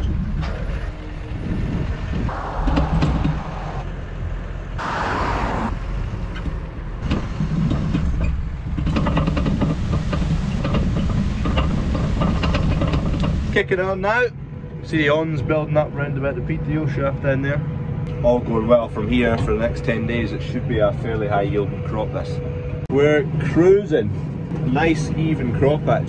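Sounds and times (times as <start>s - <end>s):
rapid knocks and rattles: 7.0s - 13.5s.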